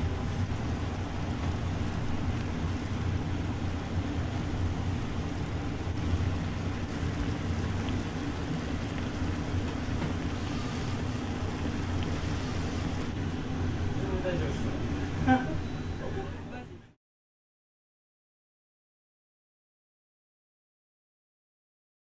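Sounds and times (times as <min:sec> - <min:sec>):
low hum: 0:00.0 - 0:16.8.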